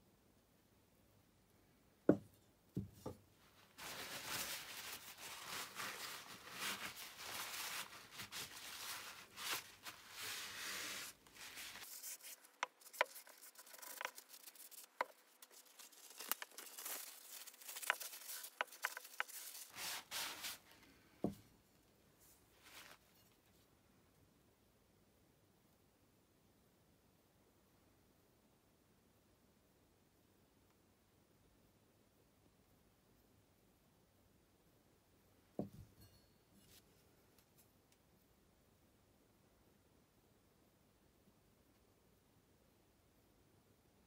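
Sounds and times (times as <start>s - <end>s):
paper towel rubbing metal blade: 4.3s - 20.6s.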